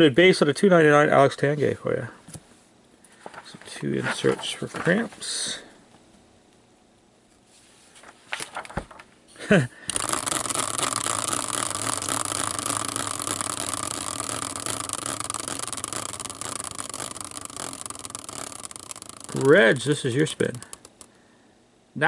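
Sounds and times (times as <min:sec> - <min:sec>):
spinning wheel whirring hiss: 0:09.8 - 0:21.2.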